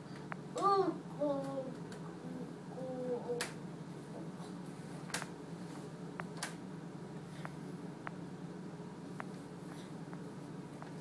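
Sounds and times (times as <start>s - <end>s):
steady low hum: 0.0s - 11.0s
toddler vocal sound: 0.6s - 3.5s.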